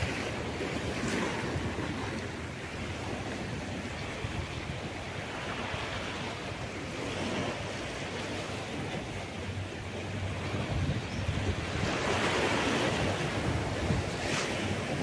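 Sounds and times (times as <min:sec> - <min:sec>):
ocean surf rushing: 0:00.0 - 0:15.0
wind gusting on microphone: 0:00.0 - 0:15.0.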